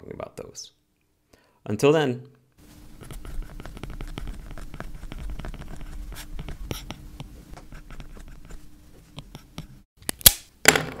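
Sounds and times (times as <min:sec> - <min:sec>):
pen scratching on paper: 0:03.0 - 0:09.9.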